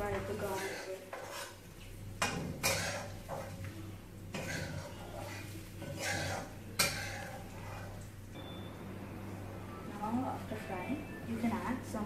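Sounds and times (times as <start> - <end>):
spatula scraping and knocking wok: 0.0 - 8.1.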